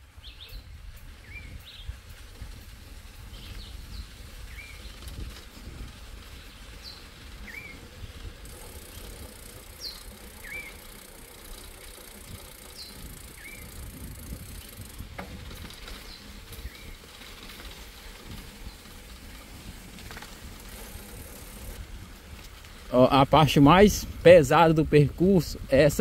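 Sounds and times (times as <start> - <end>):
bicycle tyres rumbling on dirt: 0.0 - 26.0
wind on microphone: 0.2 - 9.3, 12.2 - 17.0, 23.5 - 26.0.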